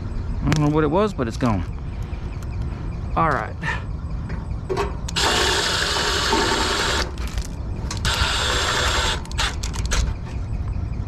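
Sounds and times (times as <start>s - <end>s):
cordless power driver running: 5.1s - 10.0s.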